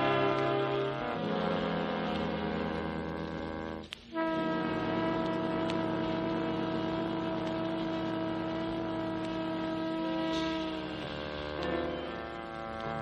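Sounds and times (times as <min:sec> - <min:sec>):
jazz ensemble holding a note: 0:00.0 - 0:13.0
low pulsing note: 0:00.0 - 0:13.0.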